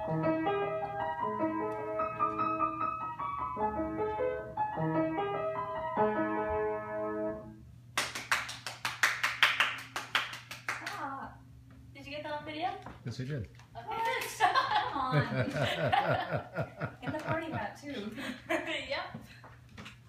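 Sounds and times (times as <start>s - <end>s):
piano tune: 0.0s - 7.9s
people clapping: 8.0s - 11.1s, 14.0s - 16.4s, 17.0s - 17.6s.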